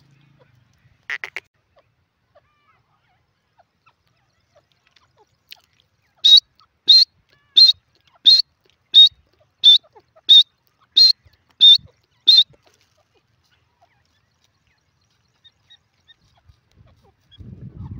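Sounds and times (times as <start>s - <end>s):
bird short sharp high calls: 6.1s - 12.6s.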